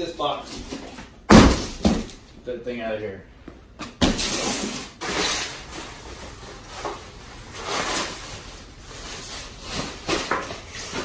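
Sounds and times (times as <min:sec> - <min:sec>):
foam packing wrap rustling: 0:04.2 - 0:11.0.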